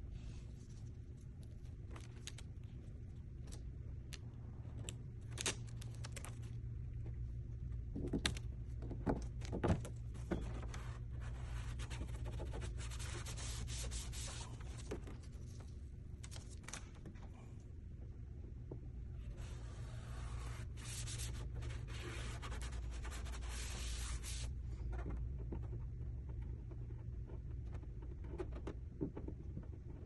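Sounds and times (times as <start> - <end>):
steady low hum: 0.0 - 30.0
vinyl liner crackling: 4.9 - 6.7
fingers rubbing vinyl: 10.2 - 15.0, 19.2 - 30.0.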